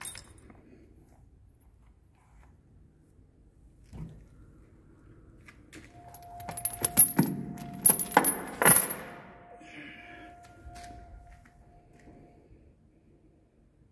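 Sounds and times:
metal chain clinking and jangling: 0:00.0 - 0:00.5, 0:06.0 - 0:09.3.

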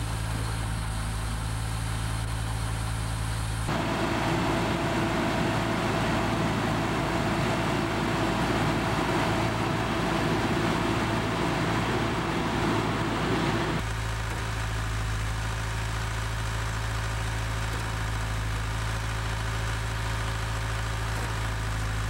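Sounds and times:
concrete pump engine running: 0:00.0 - 0:22.0
rough engine noise with whine: 0:00.0 - 0:22.0.

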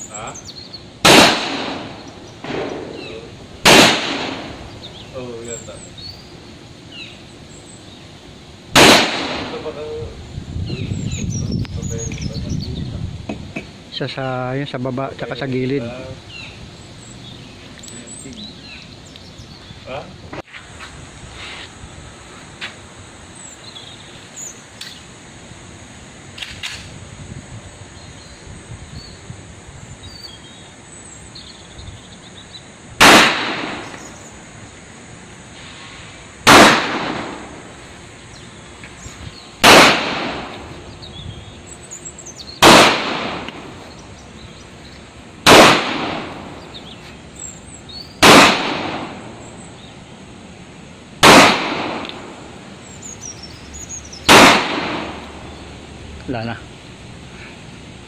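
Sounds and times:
pistol shots with echo: 0:01.0 - 0:04.7, 0:08.8 - 0:10.0, 0:33.0 - 0:34.1, 0:36.4 - 0:37.7, 0:39.6 - 0:40.6, 0:42.6 - 0:43.6, 0:45.4 - 0:46.6, 0:48.2 - 0:49.4, 0:51.2 - 0:52.4, 0:54.2 - 0:55.3.

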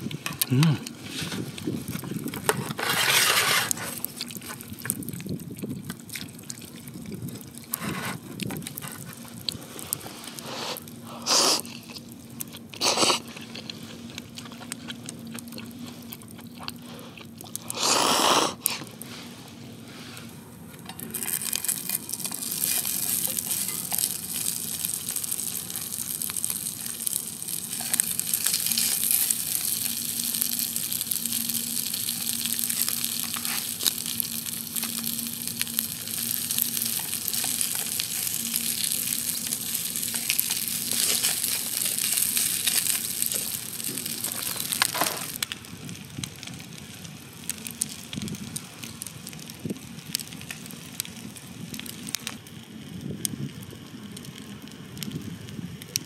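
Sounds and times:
dumplings sizzling in a pan: 0:20.8 - 0:52.4.

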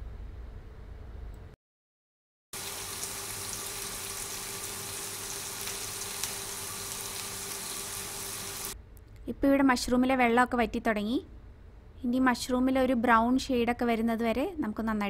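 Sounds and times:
mushrooms sizzling in a frying pan: 0:02.6 - 0:08.8.

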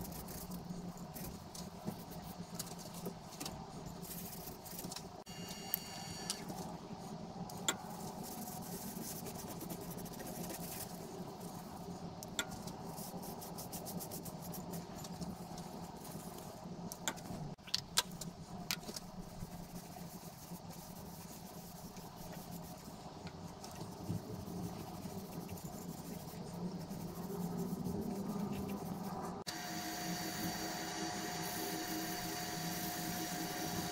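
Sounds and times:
lathe motor humming: 0:29.5 - 0:33.9.

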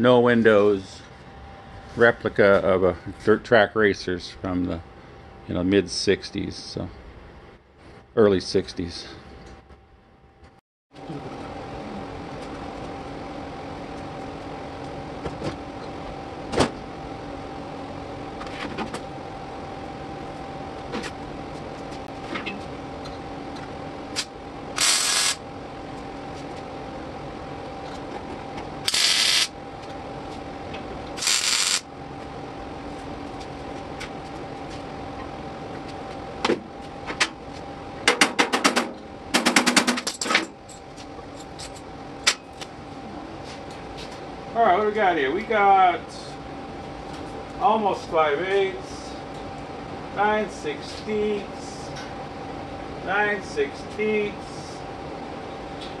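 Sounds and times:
shop hum: 0:00.0 - 0:56.0
welder bursts: 0:24.8 - 0:25.4, 0:28.9 - 0:29.5, 0:31.2 - 0:31.9.

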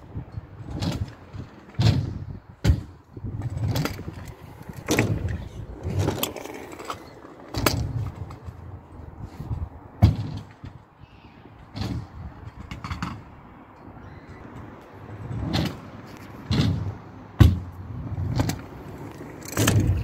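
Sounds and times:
scooter wheels rumbling on concrete: 0:00.0 - 0:20.0
scooter knocks and clacks on ramps: 0:00.6 - 0:08.7, 0:10.0 - 0:10.9, 0:11.7 - 0:13.4, 0:15.2 - 0:20.0.

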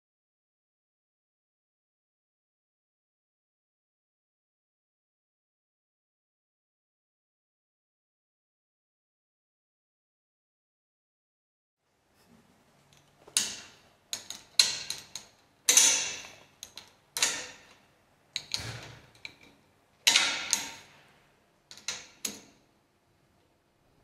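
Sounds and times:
metal bolts clicking and clanking: 0:13.0 - 0:17.8, 0:18.4 - 0:21.0, 0:21.7 - 0:22.6.

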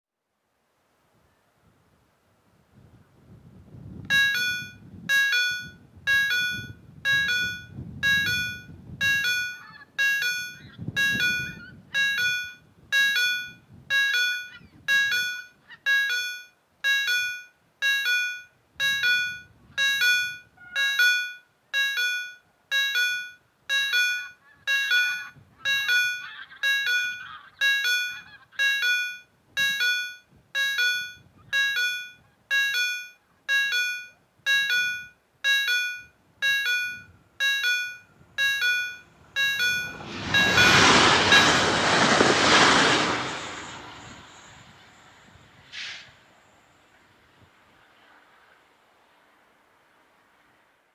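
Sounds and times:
level crossing bell ringing: 0:04.1 - 0:40.8.

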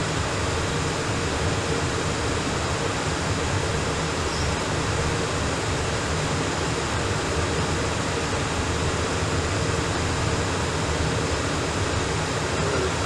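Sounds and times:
radio static hiss: 0:12.4 - 0:13.0.

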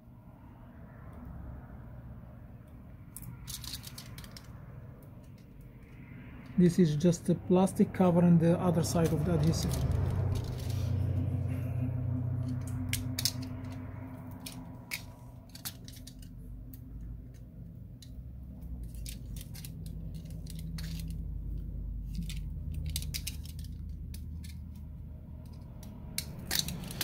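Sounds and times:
low steady hum: 0:00.0 - 0:27.0
metal tool clicking and scraping: 0:12.4 - 0:17.4, 0:18.8 - 0:27.0.

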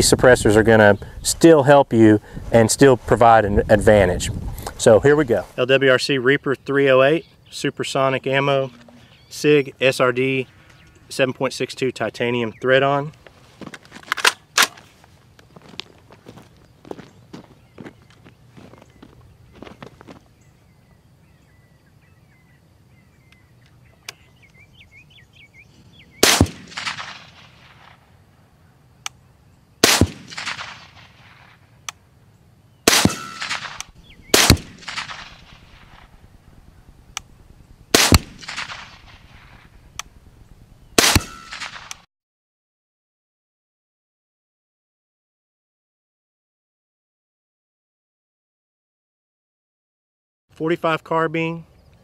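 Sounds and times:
rifle shots cracking: 0:26.2 - 0:28.1, 0:29.8 - 0:31.6, 0:32.8 - 0:36.3, 0:37.9 - 0:39.7, 0:41.0 - 0:42.0.

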